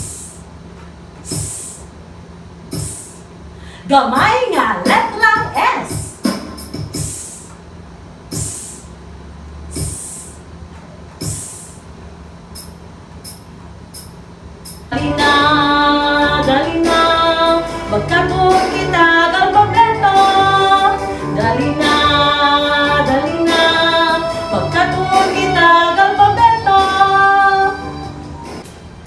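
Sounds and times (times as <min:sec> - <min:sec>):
woman singing children's song: 0:03.8 - 0:06.2, 0:14.9 - 0:28.1
bouncy backing music: 0:04.2 - 0:07.4, 0:14.7 - 0:29.0.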